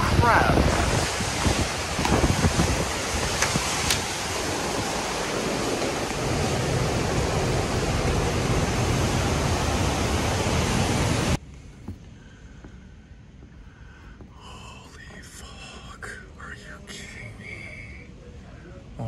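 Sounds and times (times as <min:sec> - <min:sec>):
driving rain: 0:00.0 - 0:11.4
strong wind: 0:00.0 - 0:11.4.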